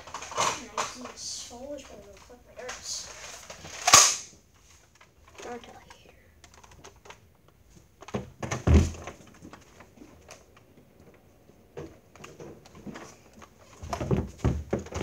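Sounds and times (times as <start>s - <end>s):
knocks and thumps on concrete floor: 8.1s - 9.2s, 13.8s - 15.0s.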